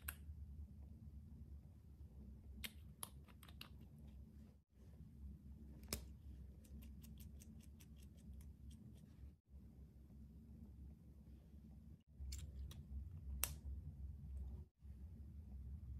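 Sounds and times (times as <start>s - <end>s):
faint steady hum: 0.0s - 15.9s.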